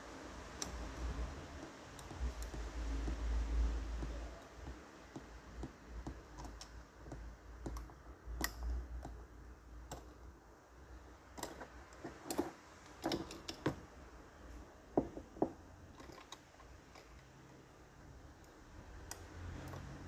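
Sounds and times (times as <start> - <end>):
faint low hum: 0.0 - 20.0
small clicks and taps on workbench: 1.6 - 9.2, 9.8 - 10.3, 11.4 - 13.9, 14.9 - 17.3.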